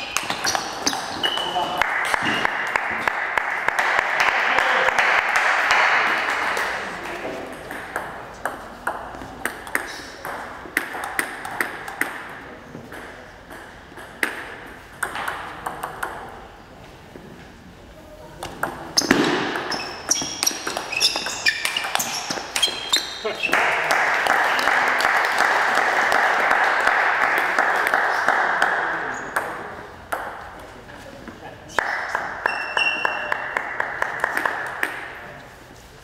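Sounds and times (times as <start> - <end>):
shoe squeaks on floor: 0.0 - 2.4, 19.0 - 23.6, 32.5 - 33.3
table tennis ball bouncing: 0.0 - 4.4, 7.4 - 16.4, 18.4 - 23.2, 28.6 - 30.7
applause: 1.7 - 7.1, 23.5 - 28.9, 31.8 - 34.9.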